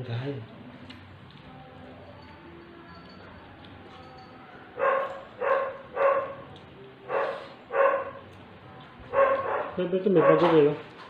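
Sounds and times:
dog barking: 4.7 - 6.5, 7.1 - 8.3, 9.1 - 10.8.

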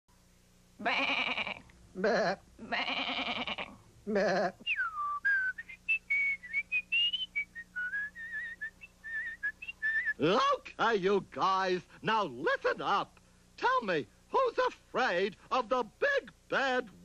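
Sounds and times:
quavering sheep bleats: 0.8 - 1.7, 2.6 - 4.5
person whistling a jaunty tune: 4.6 - 10.2.

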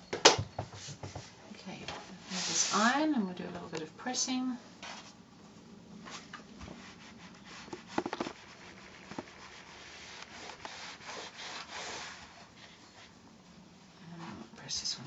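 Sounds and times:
iron scraping over fabric: 2.2 - 3.3, 6.7 - 13.1.

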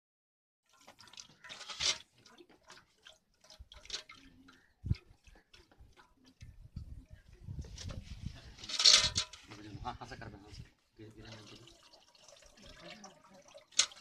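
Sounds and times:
pouring into a steel bucket: 0.7 - 6.6, 7.7 - 14.0
steel vessels clinking: 0.7 - 6.7, 7.8 - 10.0, 11.1 - 14.0.

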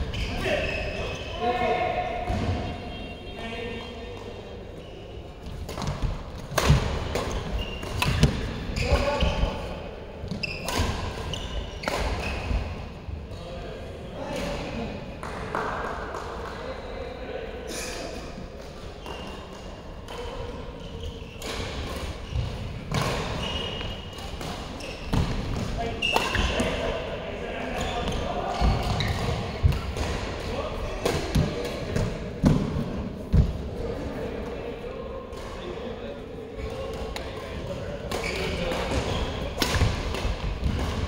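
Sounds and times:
shoe squeaks on court: 0.0 - 1.4, 7.3 - 9.6, 10.3 - 12.6, 19.0 - 19.5, 20.8 - 26.6, 38.2 - 39.5
racket hitting shuttlecock: 5.6 - 9.1, 21.4 - 26.8, 38.1 - 41.0.

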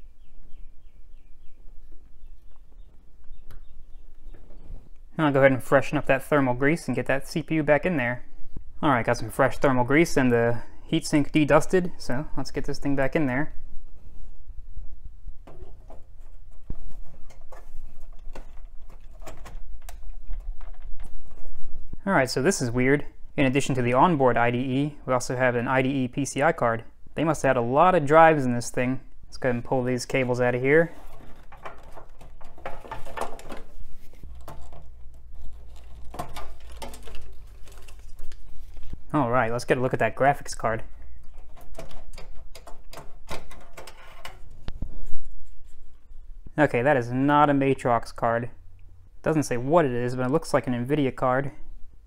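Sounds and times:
low steady hum: 0.0 - 52.0
plastic clicks and knocks: 31.1 - 33.7.

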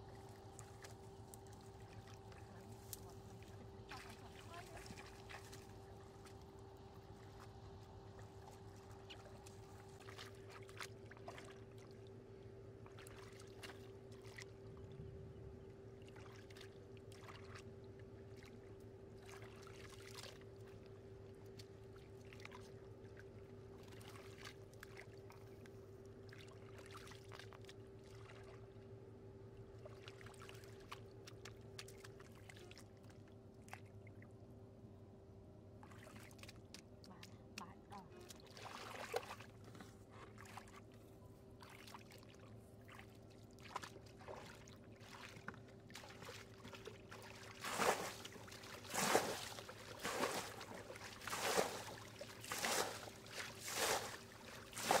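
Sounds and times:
steady thin hum: 0.0 - 26.8, 27.9 - 55.0
hands splashing in muddy water: 43.6 - 55.0.

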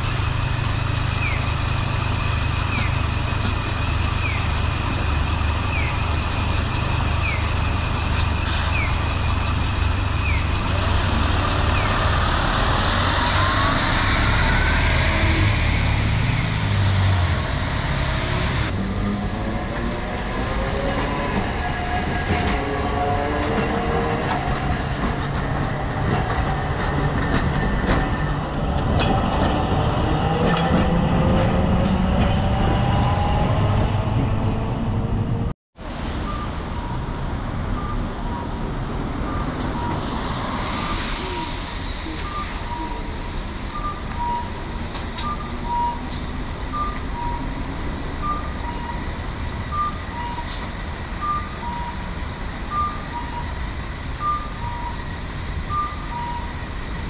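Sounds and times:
bus diesel engine rumbling: 0.0 - 19.4, 33.4 - 57.0
street traffic: 0.0 - 57.0
streetcar motor whine: 36.3 - 57.0.

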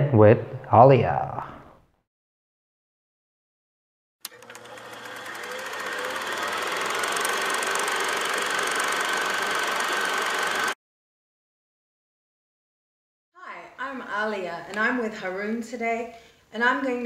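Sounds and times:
film projector clatter: 4.2 - 10.8.

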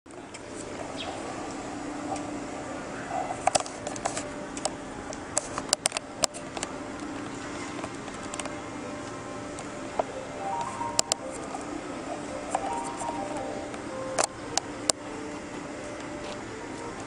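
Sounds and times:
low background hum: 0.1 - 17.0.

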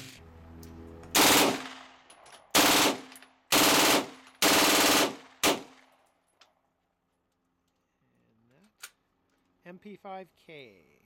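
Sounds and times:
submachine gun automatic fire: 1.2 - 1.8, 2.5 - 5.8.

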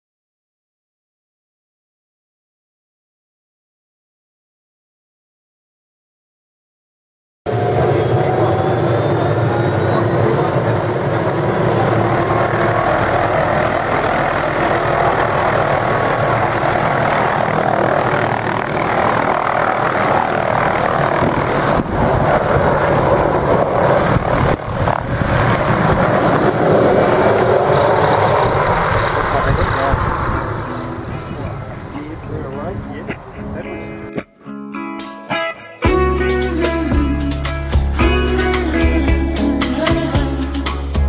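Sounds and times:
helicopter engine and rotor: 7.5 - 34.0
helicopter turbine whine: 7.5 - 34.1.

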